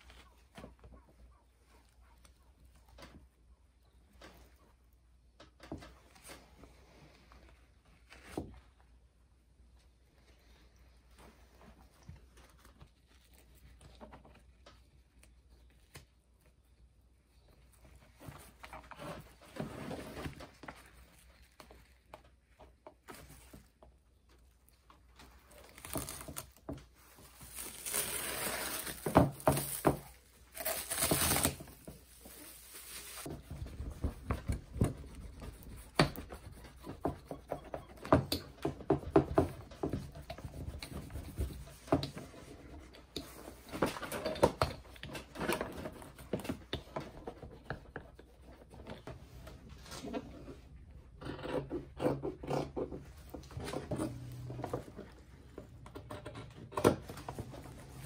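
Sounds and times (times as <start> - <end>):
plastic sheet crinkling: 25.1 - 33.5
hand roller knocking and rubbing: 33.3 - 43.4.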